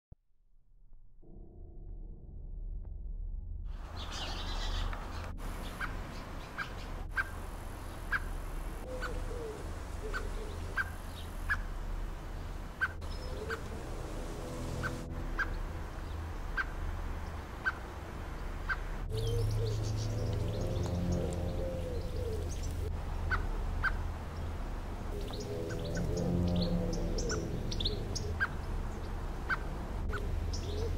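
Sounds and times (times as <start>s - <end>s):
low rumble: 0.5s - 30.9s
blackbird alarm calls: 4.0s - 11.7s, 17.6s - 17.8s, 18.6s - 24.0s, 25.2s - 30.9s
softer lower bird calls: 18.7s - 24.0s, 25.2s - 30.9s.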